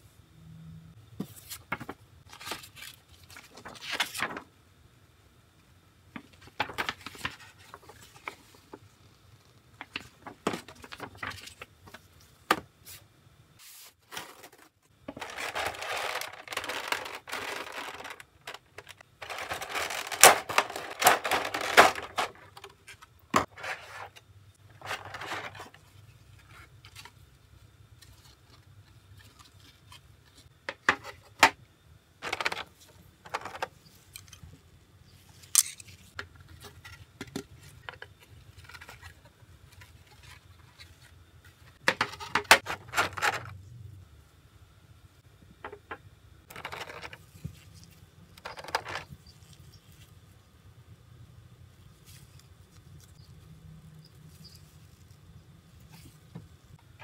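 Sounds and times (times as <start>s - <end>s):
packaging crinkling: 14.1s - 22.7s.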